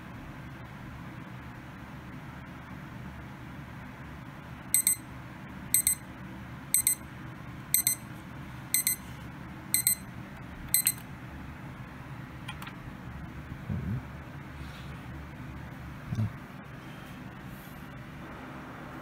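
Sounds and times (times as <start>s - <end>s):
alarm clock double beeps: 4.8s - 5.0s, 5.8s - 6.1s, 6.8s - 7.0s, 7.8s - 8.0s, 8.8s - 9.0s, 9.8s - 10.1s, 10.7s - 11.0s.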